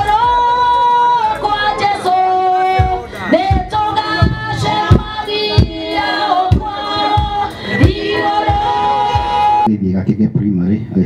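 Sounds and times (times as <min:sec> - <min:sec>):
mixed choir singing: 0:00.0 - 0:09.7
low thumping beat: 0:02.6 - 0:09.7.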